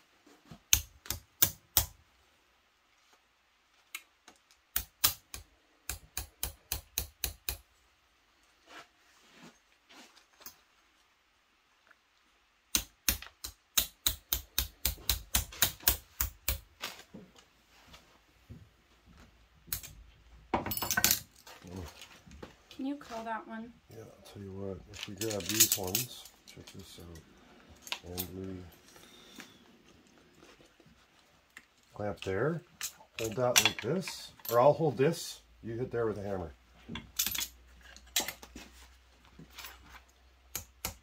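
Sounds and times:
hammer tapping metal: 4.8 - 7.6, 12.7 - 16.6.

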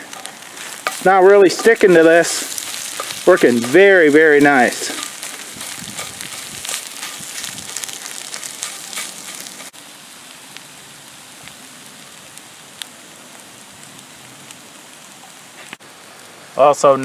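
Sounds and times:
wooden spoon scraping a pan: 0.0 - 9.7
eggs sizzling in a frying pan: 0.0 - 17.0.

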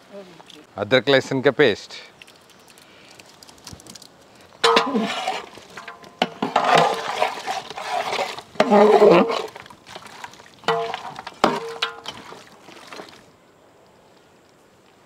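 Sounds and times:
metal spoon scraping pot: 4.6 - 9.7, 10.6 - 12.4.

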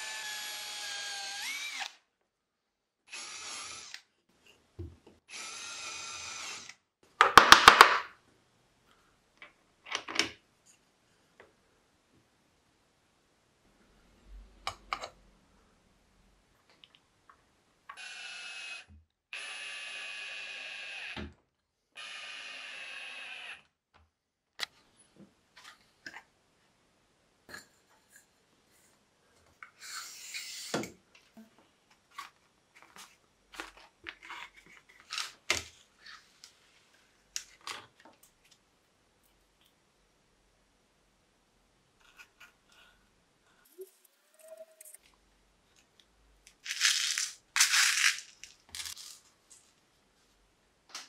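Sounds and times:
small electric motor running: 3.1 - 4.0, 18.0 - 21.2, 22.0 - 23.6.

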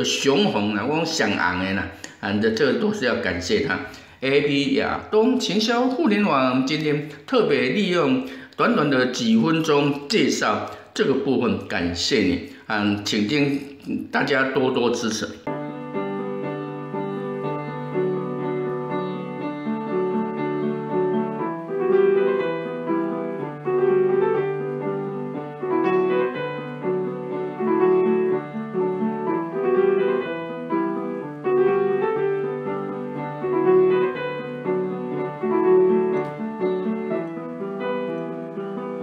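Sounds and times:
piano music: 0.0 - 10.6, 15.0 - 39.0.

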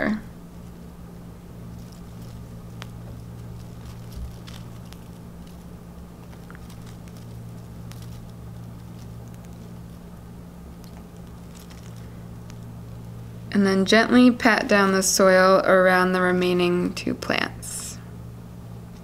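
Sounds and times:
low hum: 0.0 - 19.0
fingers rustling seedlings in soil: 1.6 - 12.8.

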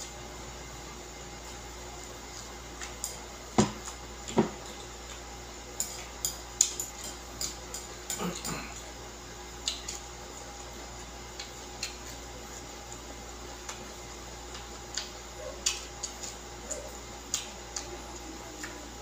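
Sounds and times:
chopsticks clicking on plate: 3.8 - 8.7, 9.6 - 10.0, 11.4 - 12.2, 14.5 - 17.9.

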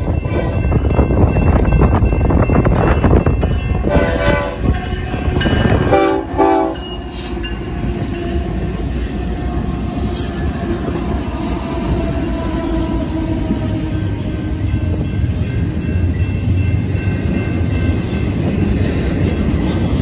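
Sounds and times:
train horn blasts: 0.0 - 1.0, 3.7 - 8.2
train engines and wheels rumbling: 0.0 - 20.0.

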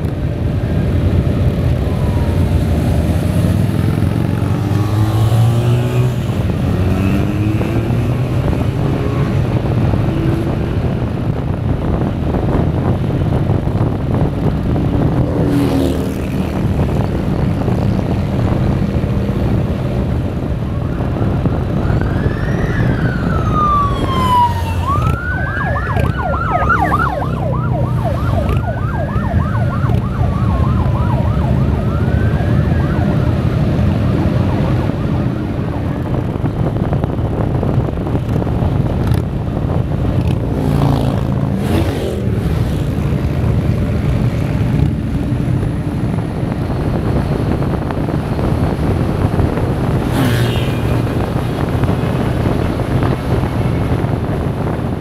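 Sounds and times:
wind noise: 0.0 - 55.0
motorcycle engine: 0.2 - 11.8
police siren wailing: 0.7 - 6.5, 20.8 - 36.2.

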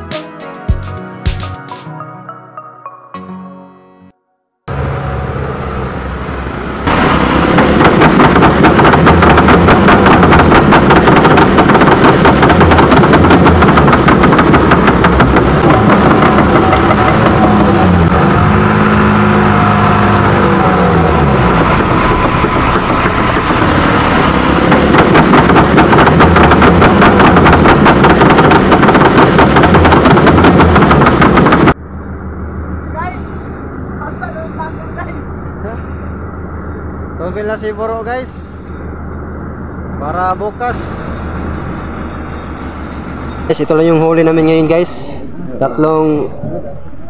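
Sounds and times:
boat engine running fast: 4.8 - 31.8.

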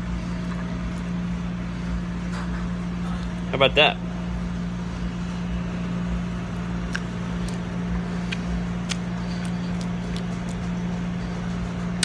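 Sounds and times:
low mechanical hum: 0.0 - 12.0
bones clicking while chewing: 8.3 - 10.8.

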